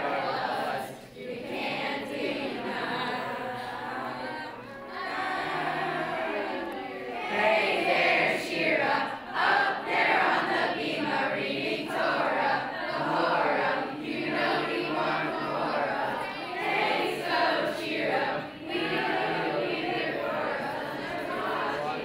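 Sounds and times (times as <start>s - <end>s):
children singing in unison: 0.0s - 22.0s.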